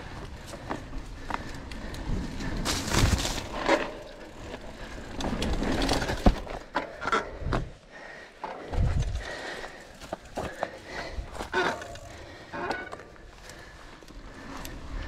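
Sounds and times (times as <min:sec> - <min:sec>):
mountain bike rattling on trail: 0:00.0 - 0:15.0.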